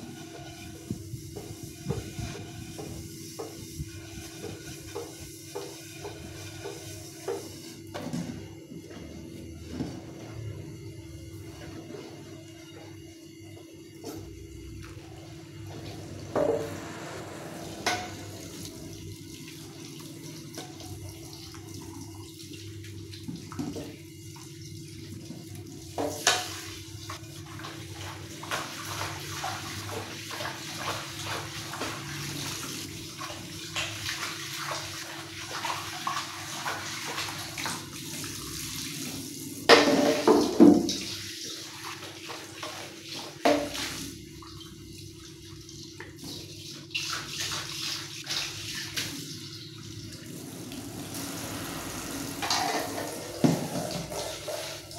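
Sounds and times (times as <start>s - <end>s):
pan being scrubbed: 0.0s - 7.7s
steady low hum: 7.8s - 23.4s.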